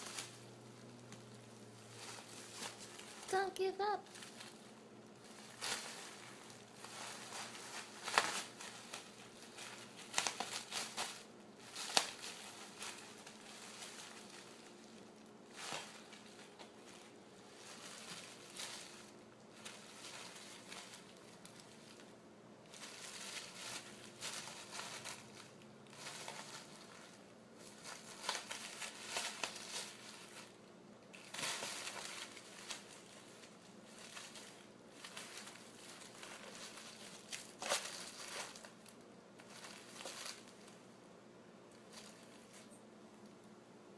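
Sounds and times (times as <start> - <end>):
bubble wrap crinkling: 0.0 - 41.0, 41.7 - 43.5.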